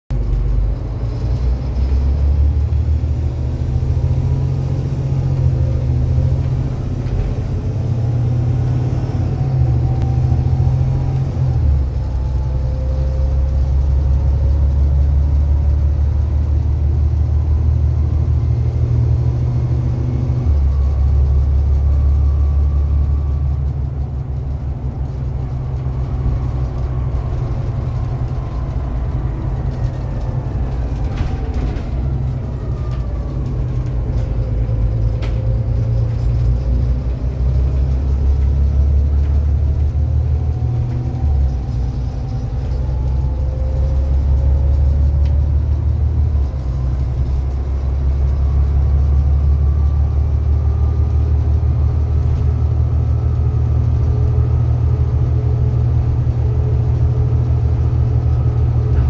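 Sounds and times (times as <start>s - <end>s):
bus diesel engine accelerating: 0.1s - 59.0s
rising whine: 16.3s - 50.5s.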